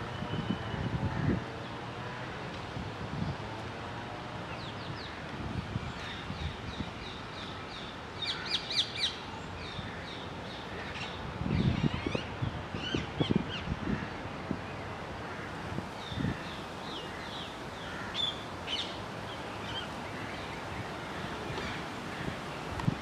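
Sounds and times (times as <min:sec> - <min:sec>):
crows cawing: 0:17.0 - 0:18.4.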